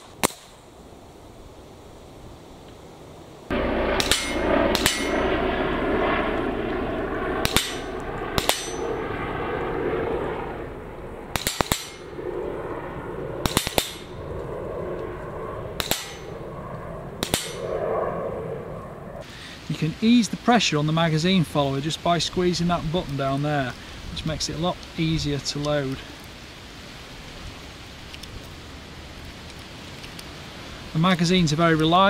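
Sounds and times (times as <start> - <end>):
rifle shots: 3.5 - 9.2, 11.2 - 12.2, 13.4 - 14.2, 15.7 - 16.4, 17.2 - 17.8
steel target clanging: 4.0 - 5.2, 7.4 - 8.9.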